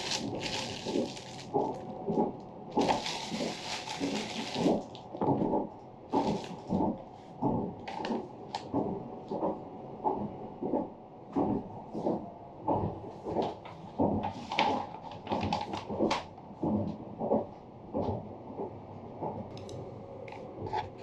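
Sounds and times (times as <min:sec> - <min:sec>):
paper bag rustling: 0:00.0 - 0:01.9, 0:02.8 - 0:05.1, 0:06.2 - 0:06.8.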